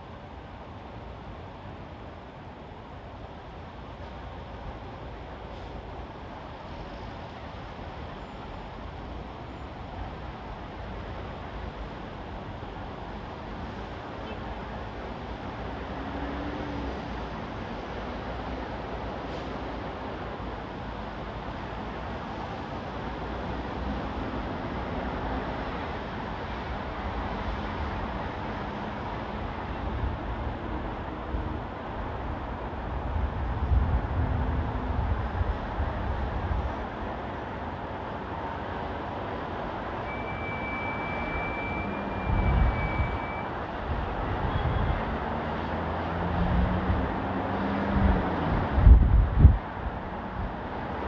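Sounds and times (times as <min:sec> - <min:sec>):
city road traffic: 0:00.0 - 0:51.0
thin high squeal: 0:40.1 - 0:43.5.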